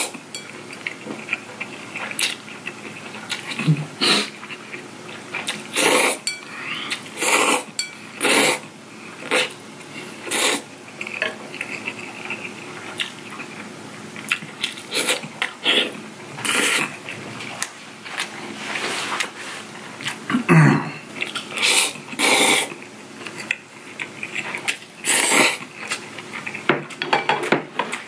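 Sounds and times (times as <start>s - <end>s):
chewing: 0.0s - 7.6s, 9.2s - 18.6s, 21.2s - 27.0s
person slurping noodles: 5.7s - 8.6s, 10.2s - 10.6s, 14.9s - 16.9s, 21.6s - 22.7s, 25.0s - 25.6s.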